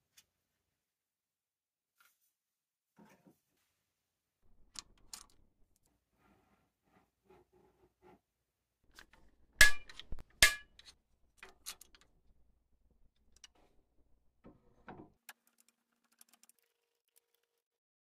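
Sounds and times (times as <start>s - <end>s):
metal hardware clicks: 8.9s - 12.2s.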